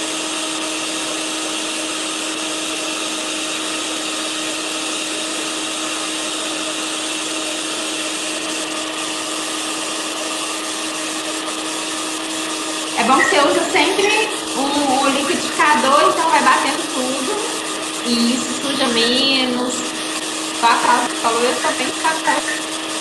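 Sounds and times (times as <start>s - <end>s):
electric blender running: 0.0s - 23.0s.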